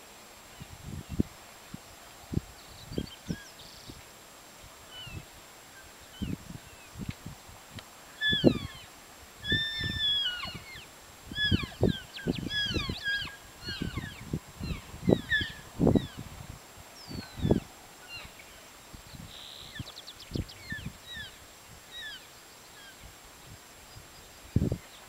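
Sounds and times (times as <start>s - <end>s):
wind buffeting microphone: 0.6s - 4.0s, 9.4s - 17.7s
elk chirping and mewing: 8.2s - 16.2s.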